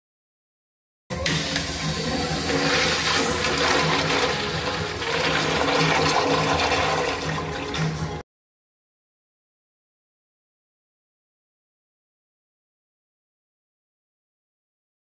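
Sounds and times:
urinal flushing water rush: 1.2 - 8.2.

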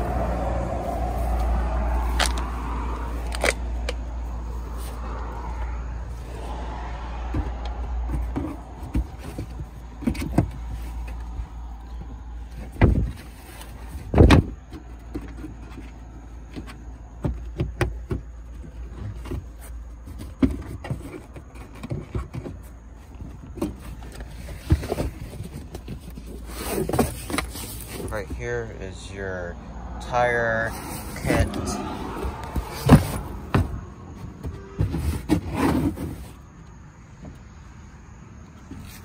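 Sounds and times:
knocks taps and rustles: 7.3 - 28.4
low steady rumble: 27.2 - 35.0
loud thumps: 32.2 - 35.5.

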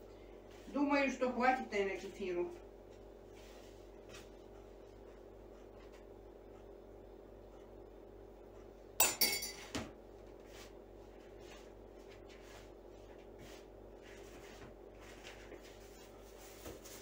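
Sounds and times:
dough kneaded in plastic bowl: 0.4 - 6.5, 10.0 - 17.0.

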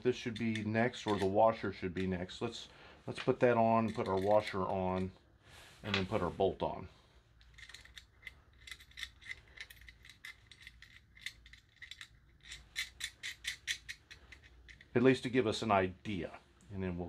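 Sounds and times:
small metal clicks and rattles: 0.2 - 2.2, 3.7 - 5.1, 7.4 - 15.0.

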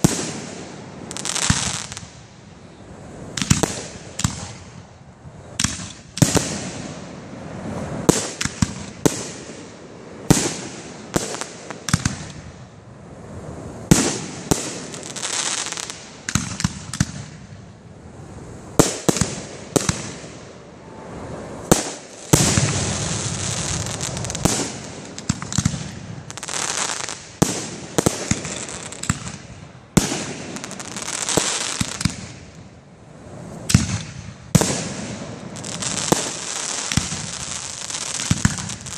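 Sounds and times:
hissing crackle: 18.3 - 38.9.

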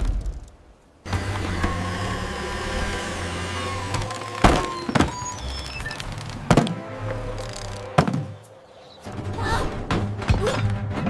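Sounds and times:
sharp wooden thunks: 0.0 - 5.4, 6.0 - 6.9, 7.6 - 8.4
cartoon background music: 5.1 - 11.0.

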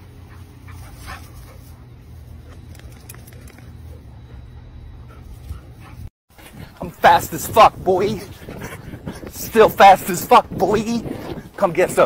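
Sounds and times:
low steady rumble: 0.0 - 6.1
dogs playing rough: 0.0 - 6.8.

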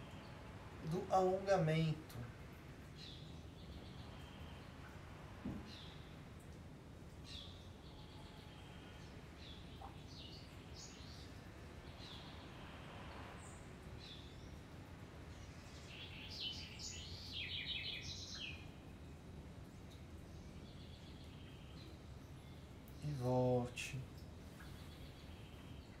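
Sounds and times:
birds chirping: 7.1 - 12.7, 13.4 - 19.0.

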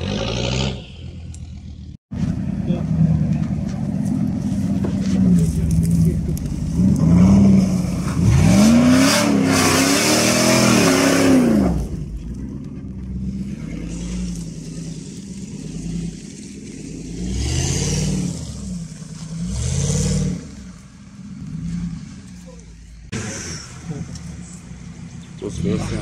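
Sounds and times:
engine revving hard: 0.0 - 1.0, 6.8 - 12.0, 17.0 - 18.8, 19.4 - 20.6.

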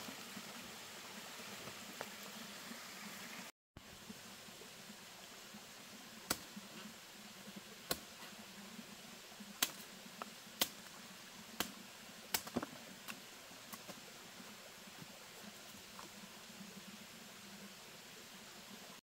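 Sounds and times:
machete chopping stalk: 6.3 - 6.5, 9.6 - 9.8, 10.6 - 10.8.

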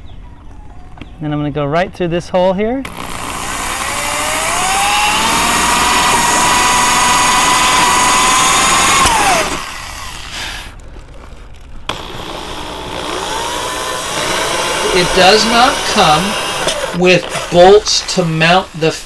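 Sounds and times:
electric drill whining: 2.9 - 10.8, 11.9 - 19.0.

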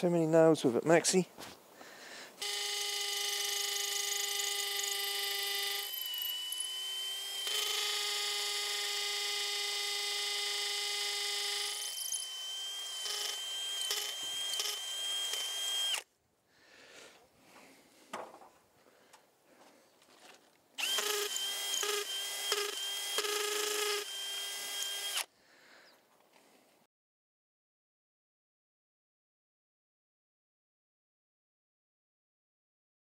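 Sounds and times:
cordless drill boring into brick: 2.4 - 16.1, 20.8 - 25.3.

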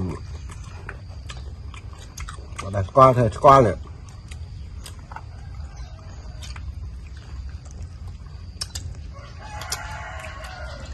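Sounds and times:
low steady rumble: 0.0 - 10.9
rooster crowing: 5.2 - 7.0, 9.0 - 10.9.

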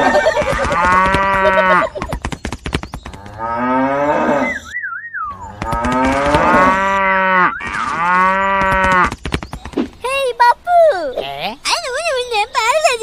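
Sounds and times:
cattle mooing: 0.4 - 1.9, 3.2 - 4.7, 5.3 - 9.1
short warbling whistle: 4.4 - 5.5.

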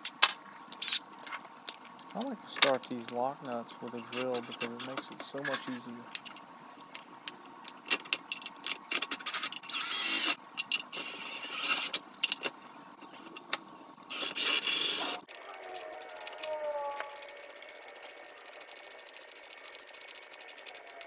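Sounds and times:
drill whirring: 9.7 - 10.4.

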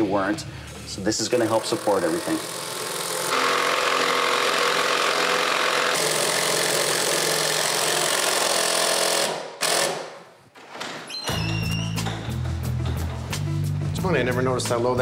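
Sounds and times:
impact driver hammering bolts: 1.6 - 10.2.

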